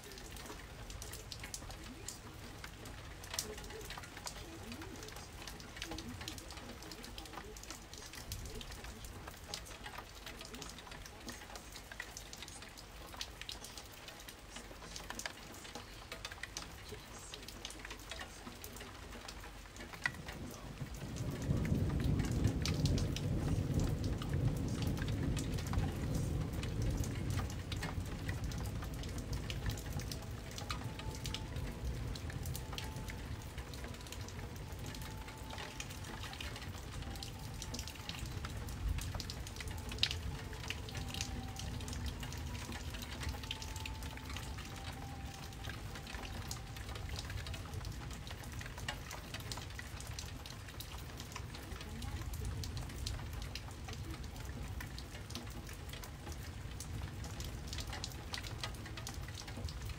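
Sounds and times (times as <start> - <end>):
rain: 0.0 - 59.9
thunder rumble: 20.2 - 51.6.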